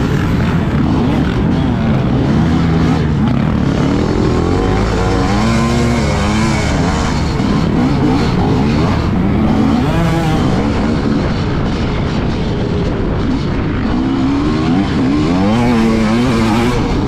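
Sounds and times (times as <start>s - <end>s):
dirt bike engine revving: 0.0s - 17.0s.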